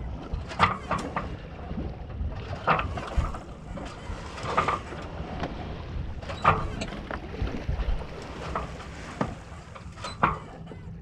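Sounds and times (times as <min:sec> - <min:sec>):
water moving along hull: 0:00.0 - 0:11.0
wind rumbling on microphone: 0:00.0 - 0:11.0.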